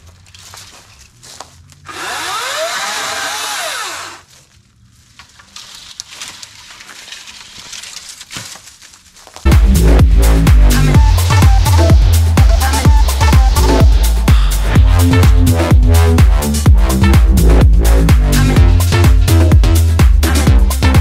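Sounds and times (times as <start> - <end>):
electric chainsaw motor whine: 1.9 - 4.3
electronic dance music: 9.5 - 21.0.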